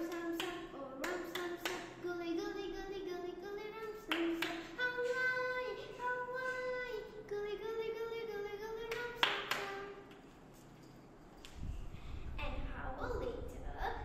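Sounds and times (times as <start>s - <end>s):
hand claps: 0.0s - 2.0s, 8.9s - 9.8s
girl singing: 0.0s - 10.1s, 12.2s - 14.0s.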